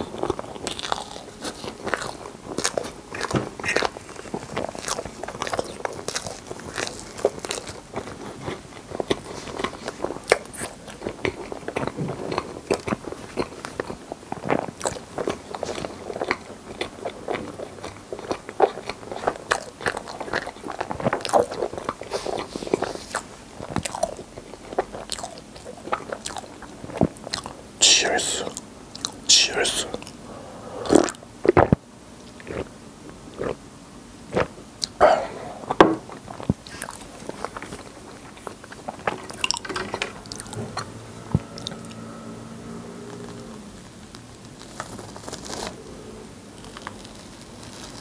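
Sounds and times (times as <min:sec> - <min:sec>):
close chewing mouth clicks: 0:00.0 - 0:30.2.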